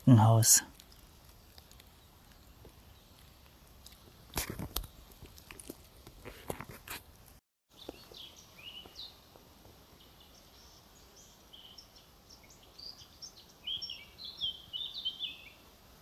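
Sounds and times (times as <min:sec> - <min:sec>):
small songbird chirping: 0:00.0 - 0:04.0, 0:07.7 - 0:09.3, 0:10.0 - 0:15.6
faint outdoor background: 0:00.0 - 0:16.0.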